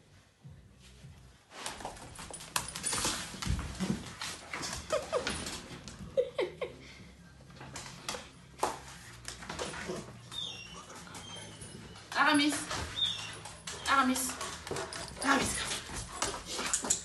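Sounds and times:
dog whimpering: 10.3s - 12.1s.

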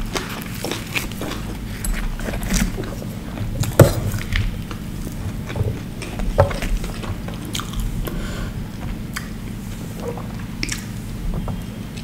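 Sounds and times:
close chewing: 0.0s - 12.0s
faint low hum: 0.0s - 12.0s
wet mouth clicks and smacks: 10.1s - 10.9s.

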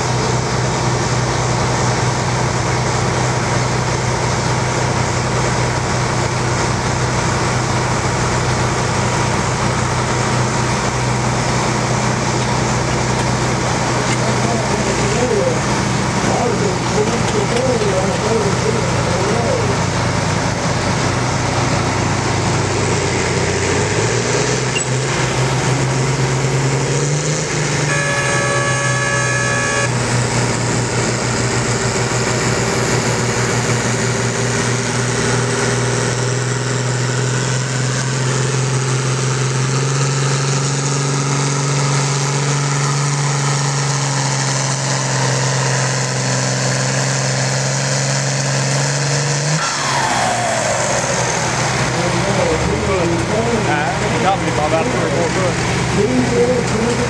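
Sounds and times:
tractor diesel engine at full throttle: 0.0s - 57.0s
horn: 27.9s - 30.0s.

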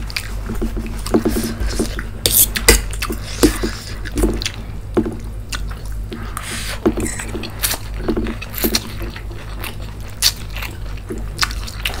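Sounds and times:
chewing noodles: 5.4s - 12.0s.

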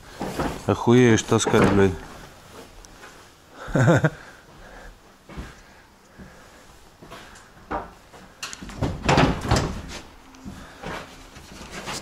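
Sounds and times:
footsteps on wooden floor: 0.1s - 3.2s, 4.5s - 5.6s, 9.7s - 12.0s.

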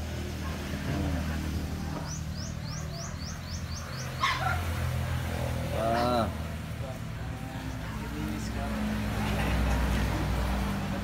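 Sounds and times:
dog barking: 4.2s - 4.7s.

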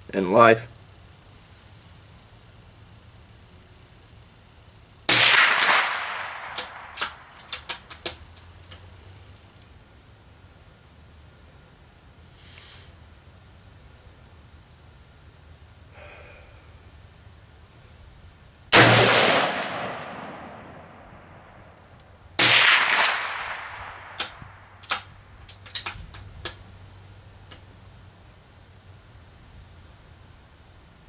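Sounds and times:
rifle shots with echo: 5.1s - 7.4s, 18.7s - 21.8s, 22.4s - 25.1s
faint sharp cracks: 5.1s - 8.8s, 21.9s - 26.6s.

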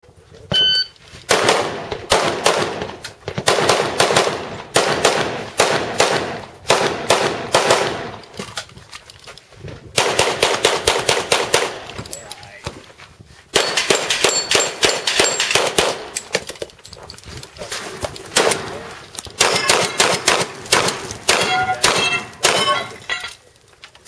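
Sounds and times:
shot timer beep: 0.5s - 1.0s
pistol shots: 1.3s - 8.2s, 10.0s - 11.9s, 13.5s - 16.2s, 18.4s - 18.8s, 19.4s - 23.0s
rifle gunshots: 1.3s - 8.2s, 10.0s - 11.9s, 13.6s - 16.2s, 18.3s - 18.8s, 19.4s - 23.0s.

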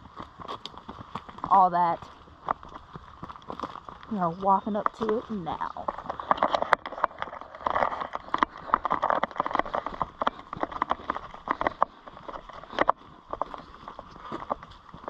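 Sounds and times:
footsteps crunching on rough ground: 0.0s - 15.0s.

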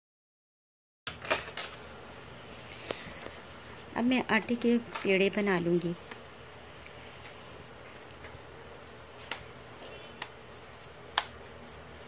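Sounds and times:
hands rubbing dough: 7.2s - 12.0s.

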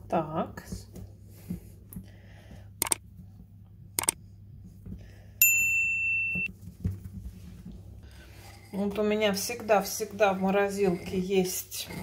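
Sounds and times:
brief clicks: 2.8s - 3.0s, 4.0s - 4.2s
high-pitched electronic beep: 6.1s - 6.5s.

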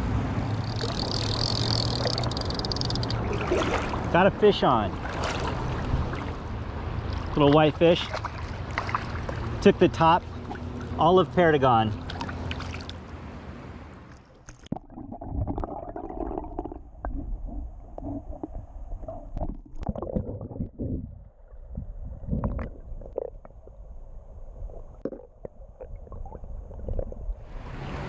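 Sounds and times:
underwater knocks and clicks: 0.7s - 3.3s, 16.5s - 21.0s
muffled underwater rumbling gurgle: 14.7s - 27.5s.

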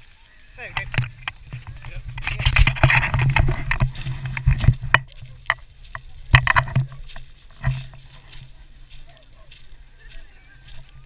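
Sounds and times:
camera handling knocks and rustling: 0.8s - 5.6s, 6.3s - 6.9s.

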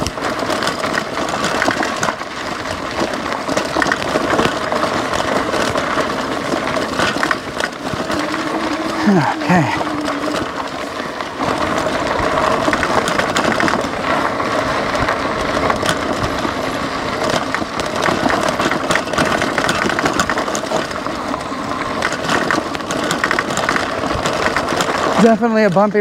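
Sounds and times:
bike clattering and knocking: 0.0s - 26.0s
tyres crunching on gravel: 0.0s - 26.0s.

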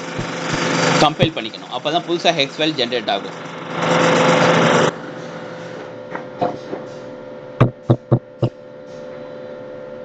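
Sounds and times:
steady hum with constant tone: 5.6s - 10.0s.

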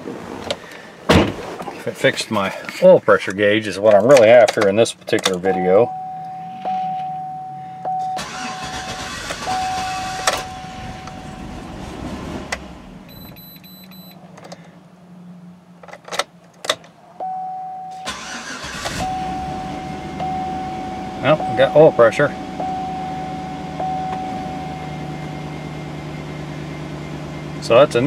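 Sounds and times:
car engine running: 4.0s - 17.0s, 18.0s - 28.0s
dashboard warning chime: 5.4s - 11.7s, 13.1s - 14.2s, 17.2s - 26.5s
starter cranking engine: 8.2s - 10.6s, 18.1s - 19.2s.

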